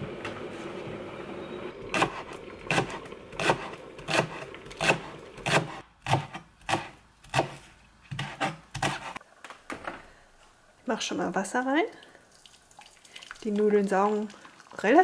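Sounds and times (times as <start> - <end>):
knife chopping on cutting board: 2.0 - 9.2.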